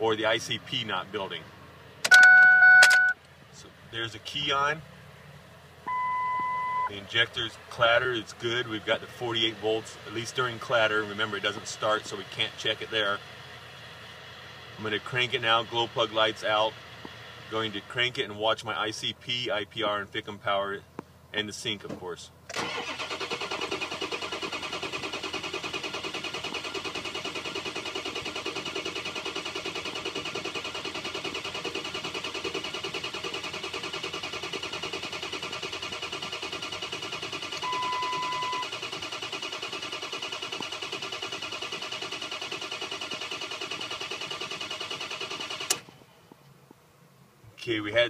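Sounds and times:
short beep: 0:02.1 - 0:03.2, 0:05.9 - 0:06.9, 0:37.6 - 0:38.7
engine cranking without starting: 0:22.5 - 0:46.0.

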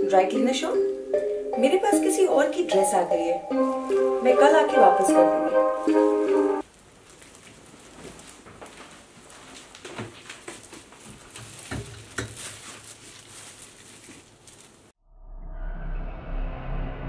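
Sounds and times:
plastic garment bag crinkling: 0:02.9 - 0:15.0
low drone: 0:15.1 - 0:17.0.

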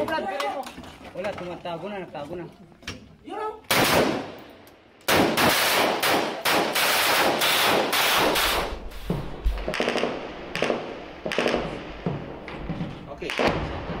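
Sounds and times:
rifle shots: 0:03.7 - 0:04.5, 0:05.1 - 0:14.0
deep thud: 0:08.8 - 0:09.8.

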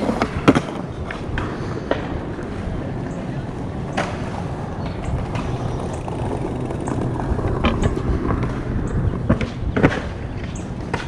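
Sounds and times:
road rumble: 0:00.0 - 0:11.0
wind noise: 0:00.0 - 0:11.0
bike clicks and knocks: 0:03.9 - 0:11.0.

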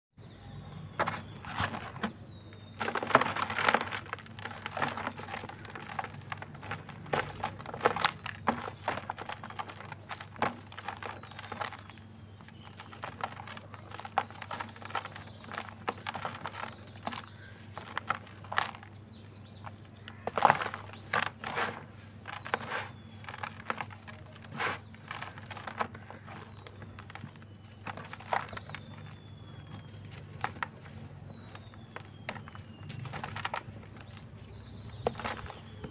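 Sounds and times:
dirt crunching in hands: 0:00.5 - 0:35.9.

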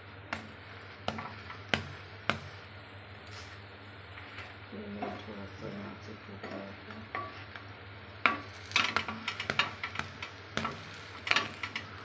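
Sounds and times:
faint frying sizzle: 0:00.0 - 0:12.0
wooden spatula scraping griddle: 0:03.3 - 0:07.6, 0:08.2 - 0:12.0.

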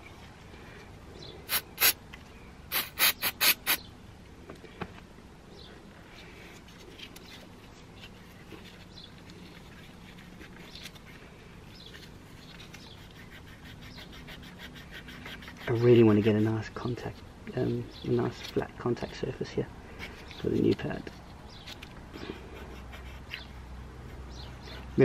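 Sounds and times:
aerosol spray hissing bursts: 0:01.5 - 0:02.0, 0:02.7 - 0:03.8.

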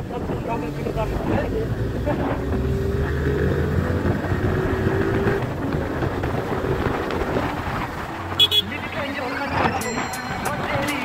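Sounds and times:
wind rushing over microphone: 0:00.0 - 0:10.9
motorcycle engine accelerating: 0:00.9 - 0:09.1.

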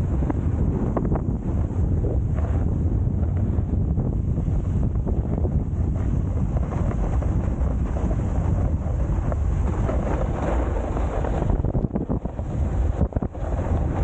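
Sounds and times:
snowboard scraping icy snow: 0:00.0 - 0:14.0
wind buffeting microphone: 0:00.0 - 0:14.0
snowboard chattering on ice: 0:05.4 - 0:14.0.

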